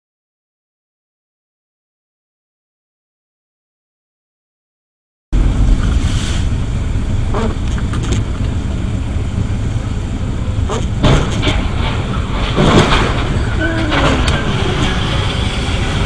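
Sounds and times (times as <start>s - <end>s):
car driving on wet road: 5.4s - 16.0s.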